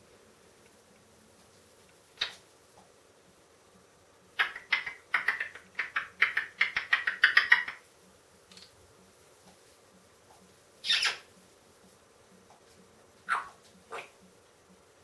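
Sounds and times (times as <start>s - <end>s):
parrot clicking chirps: 4.4s - 7.8s.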